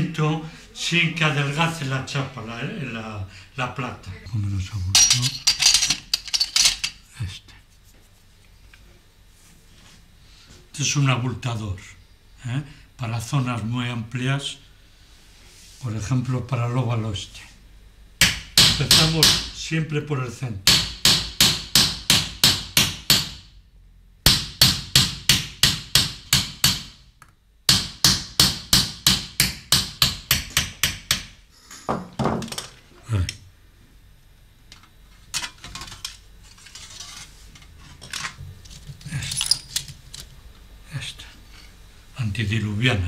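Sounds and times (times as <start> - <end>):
hammer striking metal punch: 24.3 - 27.0.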